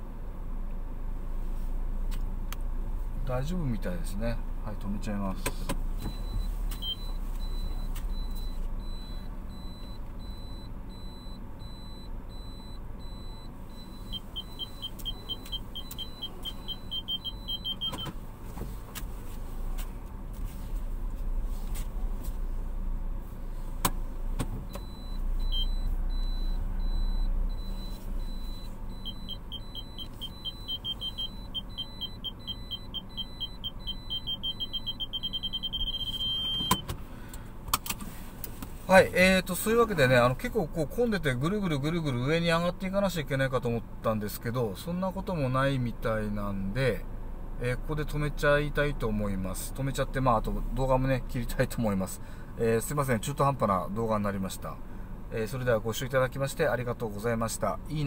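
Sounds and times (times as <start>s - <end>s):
car engine humming: 0.0s - 58.0s
parking sensor beeping: 5.5s - 18.2s, 24.6s - 37.0s.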